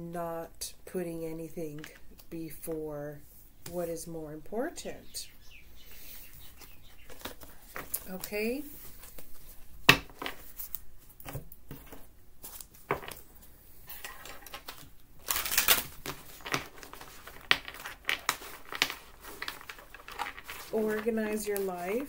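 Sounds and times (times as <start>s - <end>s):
cards shuffling: 6.5s - 22.0s.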